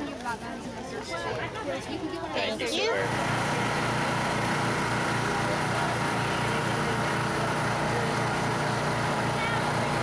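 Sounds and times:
small engine running: 2.8 - 10.0.

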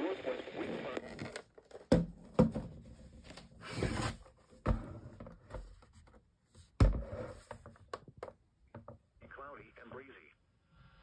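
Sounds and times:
radio hiss and voice: 0.0 - 1.3, 9.2 - 10.4.

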